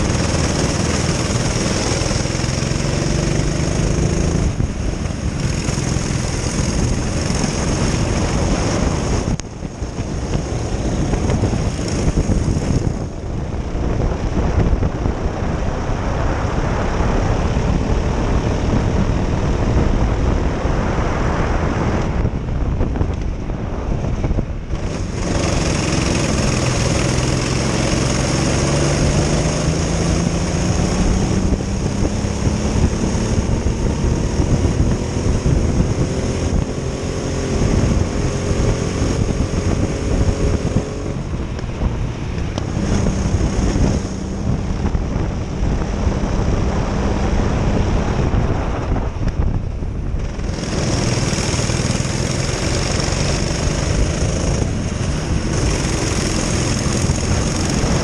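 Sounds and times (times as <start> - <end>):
kart engines revving: 0.0 - 14.8, 24.7 - 48.2, 50.1 - 58.0.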